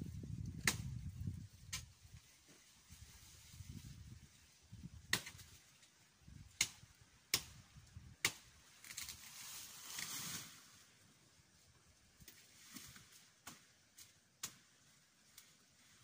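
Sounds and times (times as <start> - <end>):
rustle of leaves and branches: 0.0 - 16.0
chopping into woody stalks: 0.6 - 1.0, 5.1 - 5.6, 6.5 - 7.6, 8.2 - 9.2, 12.2 - 14.7.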